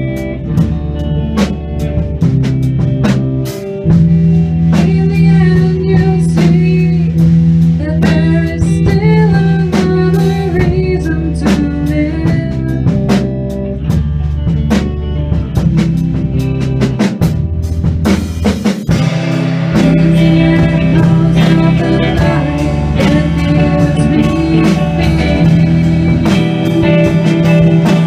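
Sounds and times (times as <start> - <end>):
band playing a song: 0.0 - 28.0
drum kit beat: 0.0 - 28.0
pitch-bending lead melody: 13.3 - 28.0.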